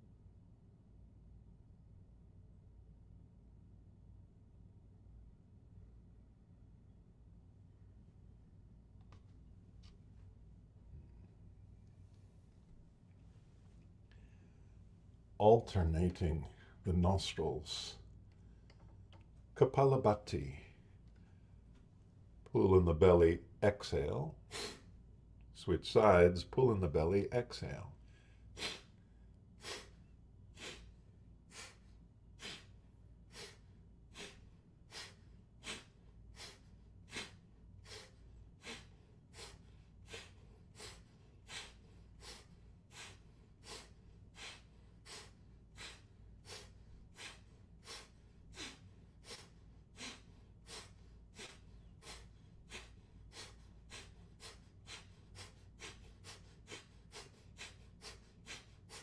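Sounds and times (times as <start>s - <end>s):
forceful nasal exhalations: 28.5s - 29.0s, 30.6s - 59.0s.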